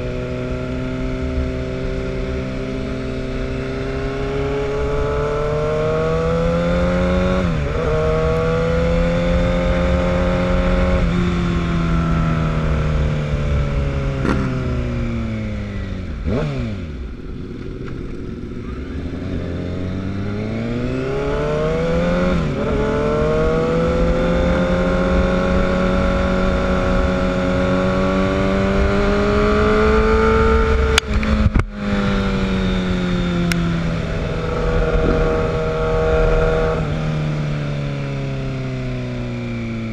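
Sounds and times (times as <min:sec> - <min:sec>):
motorcycle engine revving: 0:00.0 - 0:39.9
wind noise on microphone: 0:19.8 - 0:38.2.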